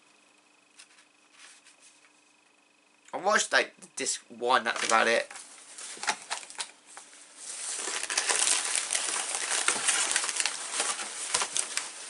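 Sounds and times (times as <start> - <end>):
plastic bag crinkling: 4.7 - 6.7, 7.4 - 12.0.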